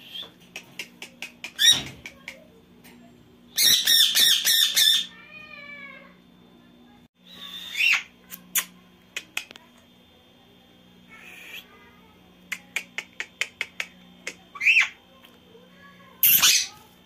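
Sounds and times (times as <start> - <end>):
parakeets calling: 1.4 - 2.2, 3.6 - 5.2, 7.2 - 8.2, 12.9 - 15.0, 16.2 - 16.8
harsh squawk: 7.3 - 8.1, 14.5 - 15.0.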